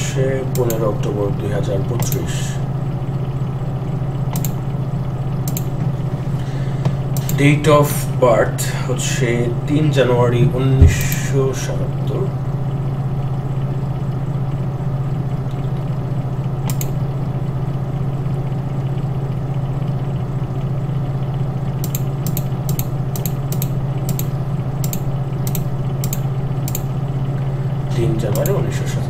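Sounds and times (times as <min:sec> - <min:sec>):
steady low hum: 0:00.0 - 0:29.0
computer mouse clicking: 0:00.5 - 0:00.9, 0:02.0 - 0:02.2, 0:04.3 - 0:04.6, 0:05.4 - 0:05.8, 0:07.1 - 0:07.4, 0:16.6 - 0:17.0, 0:21.8 - 0:26.9, 0:28.2 - 0:28.6.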